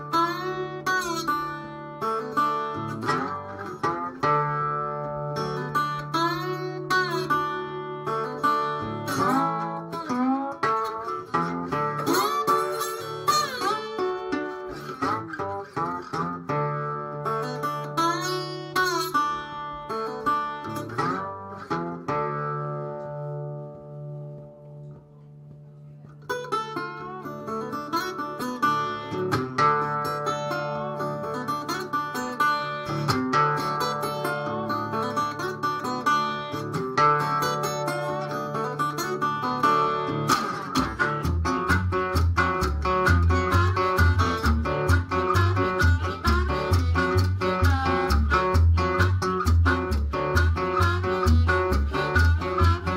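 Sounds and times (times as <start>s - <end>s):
slide resonator guitar blues: 0.0s - 52.9s.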